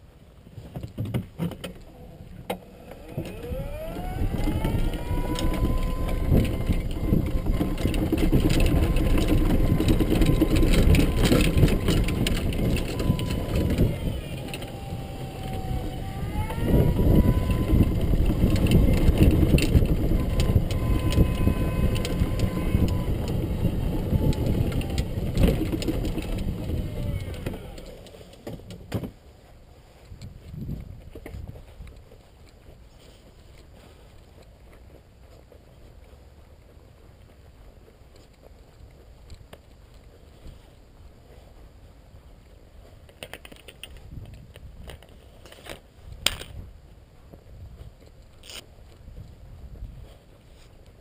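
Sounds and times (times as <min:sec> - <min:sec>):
cart body rumbling and rattling: 0:00.3 - 0:51.0
golf cart drive whining: 0:01.5 - 0:29.2.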